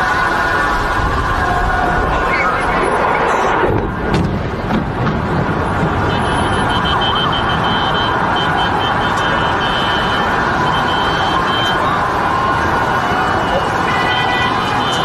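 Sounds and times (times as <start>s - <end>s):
steady rushing noise: 0.0s - 15.0s
car alarm pulsing tones: 5.7s - 15.0s.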